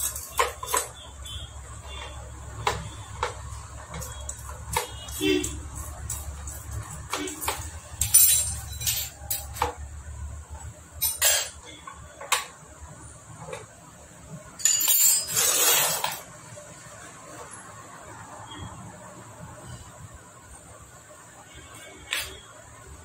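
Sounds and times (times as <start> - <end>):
screwdriver clinking on metal engine: 0.0 - 1.0, 5.7 - 9.8.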